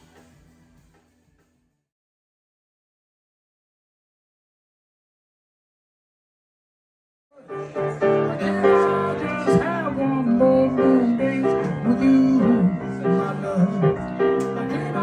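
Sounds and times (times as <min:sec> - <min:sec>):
grand piano music: 0:07.4 - 0:15.0.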